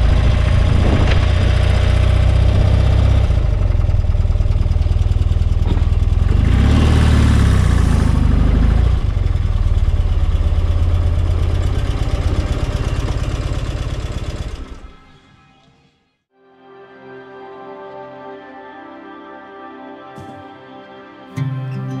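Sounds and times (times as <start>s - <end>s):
motorcycle engine revving and idling: 0.0s - 15.0s.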